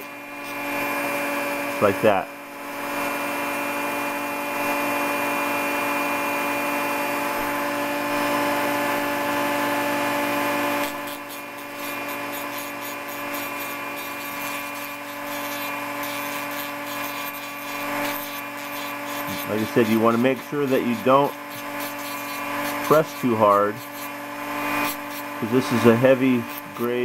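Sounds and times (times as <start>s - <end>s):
rotary tool motor whine: 0.0s - 27.0s
scratchy grinding on plastic: 10.6s - 27.0s.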